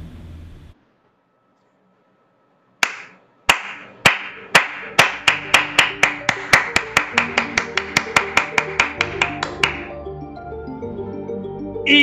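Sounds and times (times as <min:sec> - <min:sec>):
faint music tones: 0:00.0 - 0:12.0
hand claps: 0:02.8 - 0:09.9.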